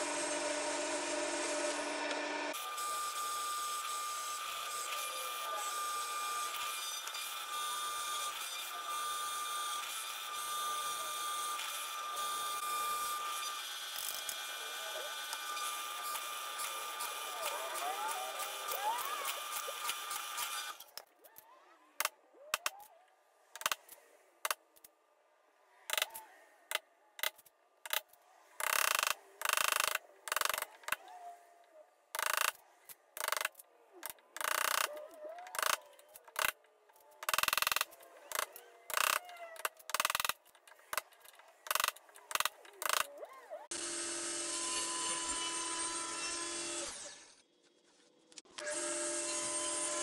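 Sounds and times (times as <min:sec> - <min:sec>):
table saw running: 0:00.0 - 0:21.0, 0:39.9 - 0:47.4, 0:48.6 - 0:50.0.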